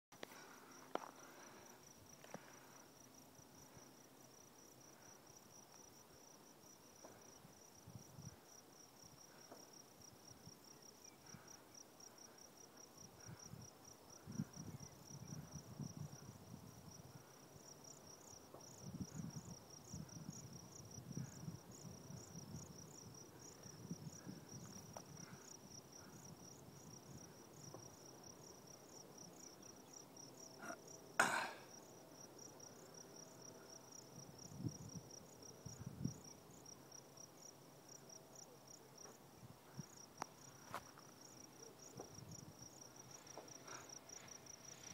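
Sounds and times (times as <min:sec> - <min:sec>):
wind rumbling on microphone: 0:14.2 - 0:17.2, 0:34.5 - 0:36.2.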